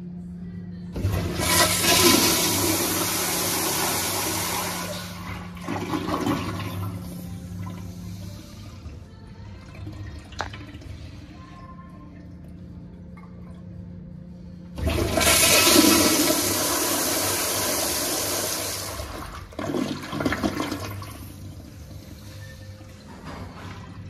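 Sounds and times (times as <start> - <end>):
toilet flushing: 1.0 - 8.9, 14.6 - 24.0.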